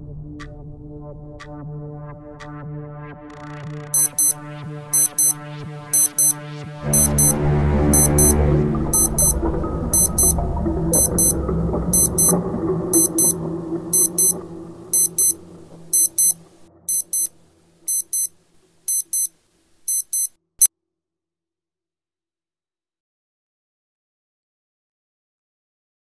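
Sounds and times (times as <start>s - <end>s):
background music: 0.0s - 18.3s
electronic alarm beeping: 4.0s - 4.4s, 5.0s - 5.4s, 6.0s - 12.4s, 13.0s - 13.4s, 14.0s - 14.4s, 15.0s - 17.3s, 17.9s - 18.3s, 18.9s - 19.3s, 19.9s - 20.3s.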